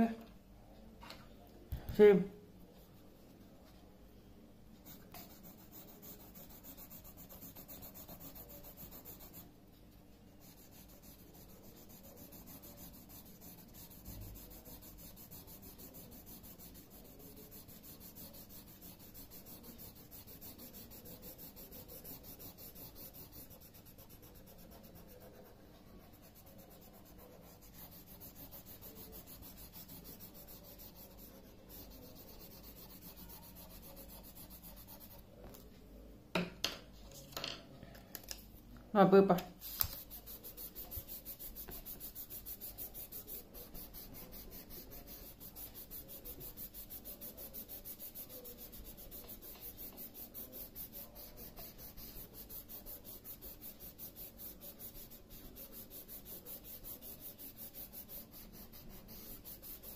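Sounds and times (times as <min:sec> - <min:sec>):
pencil scratching on paper: 0:04.8 - 0:35.4, 0:39.6 - 0:59.9.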